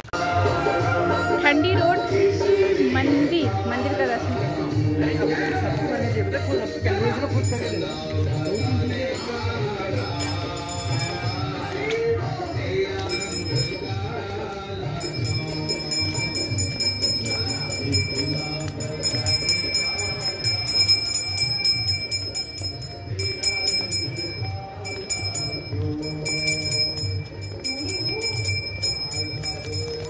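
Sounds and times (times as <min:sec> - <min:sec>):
music with steady beat: 0:00.2 - 0:30.0
temple bells ringing: 0:06.8 - 0:30.0.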